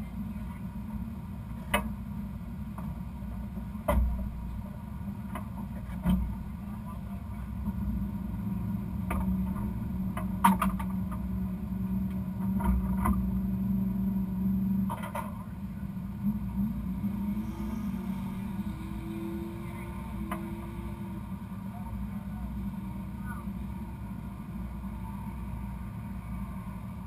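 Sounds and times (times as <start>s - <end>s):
sharp clicks and knocks: 9.0s - 11.3s
faint rising tone: 16.3s - 21.9s.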